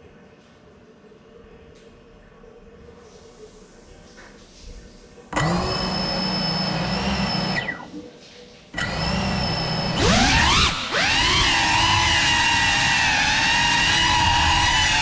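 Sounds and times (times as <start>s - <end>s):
drone motors whining: 5.4s - 8.0s, 8.8s - 15.0s.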